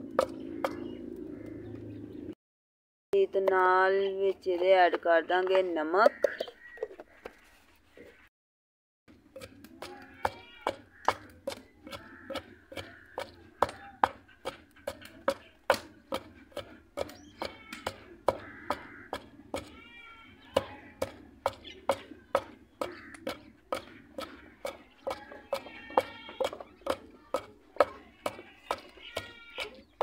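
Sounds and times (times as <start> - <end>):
pestle pounding in stone mortar: 0.0 - 1.0, 6.0 - 6.5, 9.1 - 30.0.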